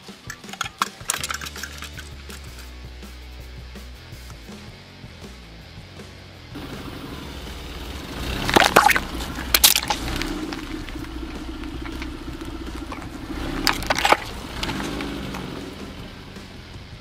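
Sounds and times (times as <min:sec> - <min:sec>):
tyre crushing plastic bottles: 0:00.0 - 0:02.6, 0:08.2 - 0:15.4.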